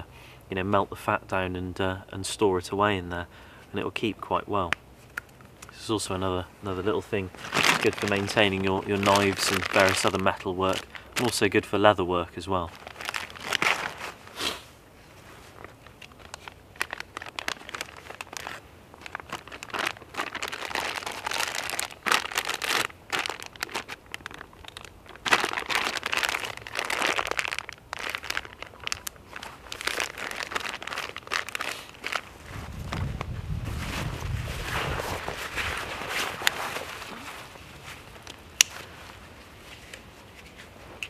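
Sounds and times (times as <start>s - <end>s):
plastic bag crinkling: 6.8s - 11.6s, 12.7s - 14.3s, 15.4s - 39.1s.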